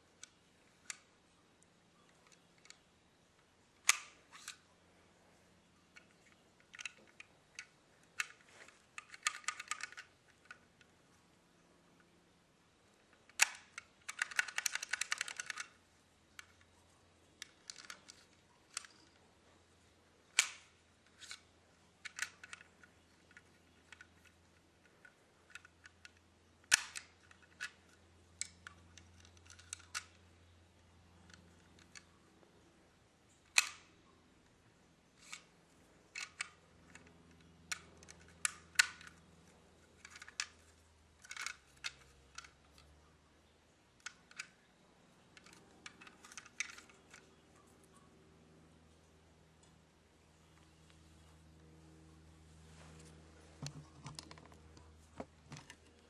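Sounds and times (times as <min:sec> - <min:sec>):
plastic parts clicking and rattling: 0:00.0 - 0:01.4, 0:02.0 - 0:05.0, 0:05.8 - 0:10.9, 0:12.8 - 0:19.4, 0:20.2 - 0:32.5, 0:33.3 - 0:34.0, 0:35.1 - 0:43.0, 0:43.9 - 0:48.1, 0:53.6 - 0:56.0.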